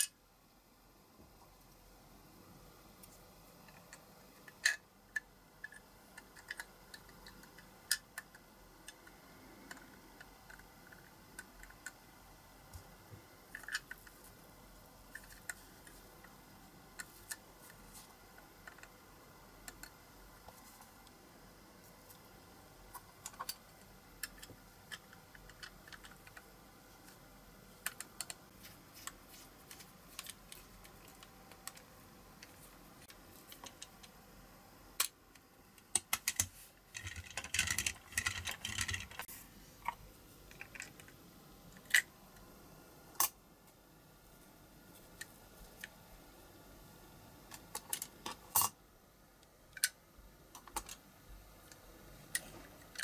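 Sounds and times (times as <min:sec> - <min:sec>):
toy car parts clicking: 0:36.0 - 0:39.3.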